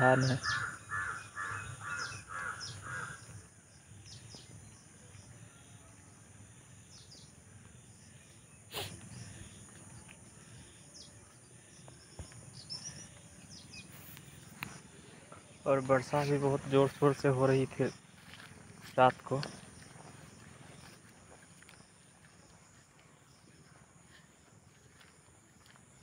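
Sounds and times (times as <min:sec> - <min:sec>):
crow cawing: 0:00.0 - 0:03.5.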